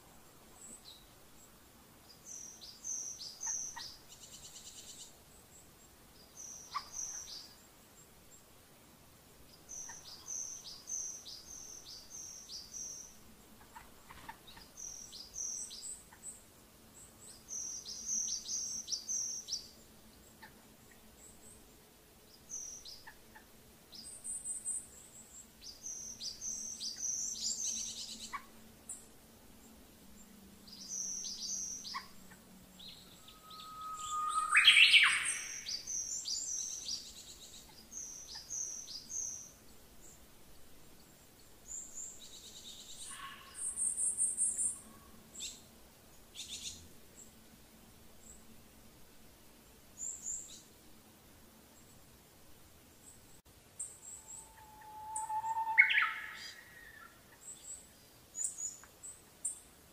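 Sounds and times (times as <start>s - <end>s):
birds chirping: 30.2s - 40.2s, 53.8s - 57.8s.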